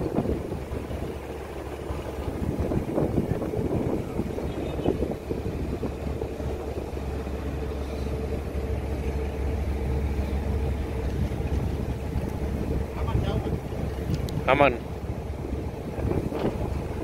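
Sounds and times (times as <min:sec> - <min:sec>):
ship engine drone: 0:00.0 - 0:17.0.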